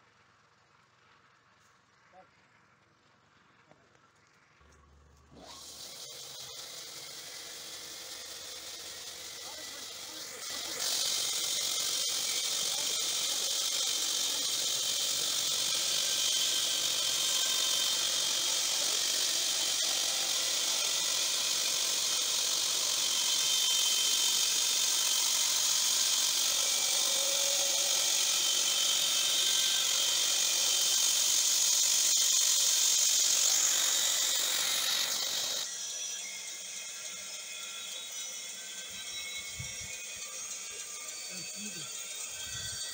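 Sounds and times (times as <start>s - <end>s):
band saw cutting log: 5.3s - 42.9s.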